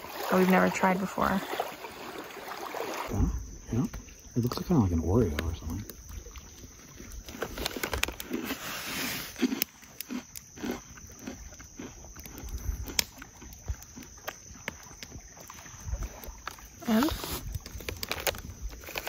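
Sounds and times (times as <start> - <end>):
crunchy bites and chewing: 7.2 - 14.8, 16.4 - 19.0.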